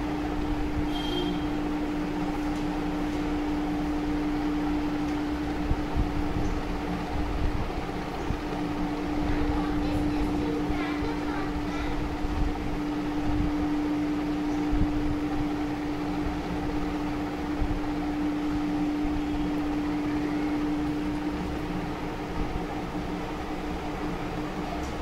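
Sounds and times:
machine hum: 0.0s - 25.0s.

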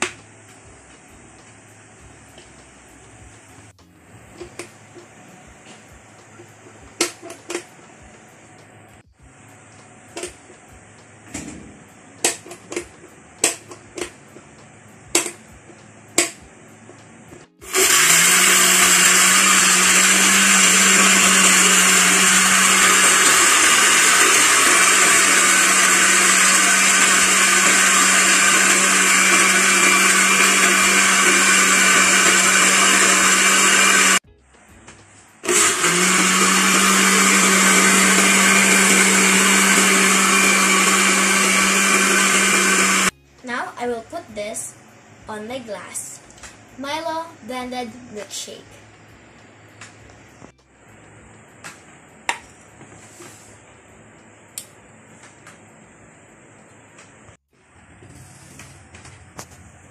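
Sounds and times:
blender motor running: 17.6s - 34.2s, 35.4s - 43.1s.

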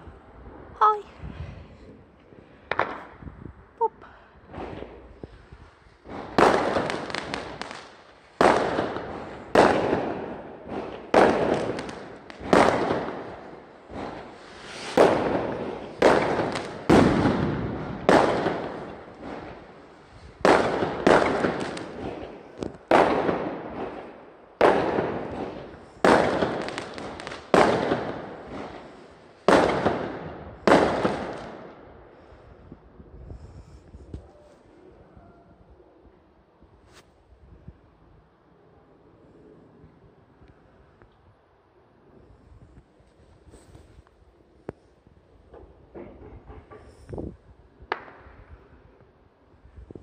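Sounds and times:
fireworks bursting: 1.9s - 3.3s, 4.5s - 31.9s, 45.4s - 49.0s.

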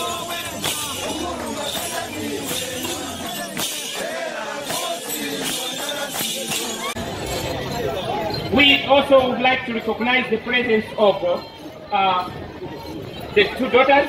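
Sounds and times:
men singing and chanting: 0.0s - 7.5s
rattling clinking strikes: 0.0s - 8.5s.

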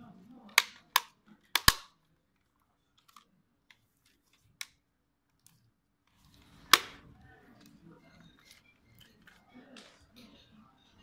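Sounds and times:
plastic clips snapping: 0.5s - 2.0s, 6.6s - 7.0s.

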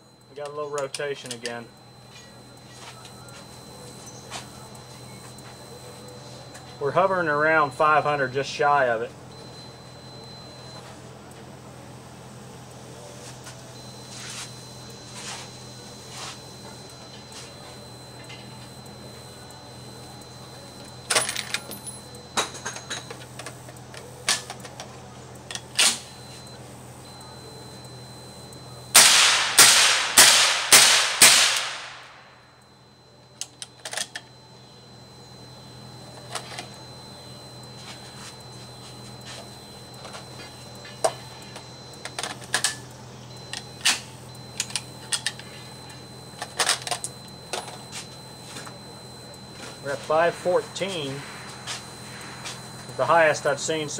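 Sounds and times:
suppressed gunshots: 29.0s - 32.0s.

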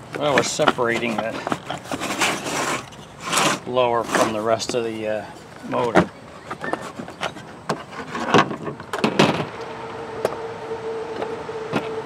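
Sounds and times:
plastic parts clicking and scraping: 0.0s - 9.6s.

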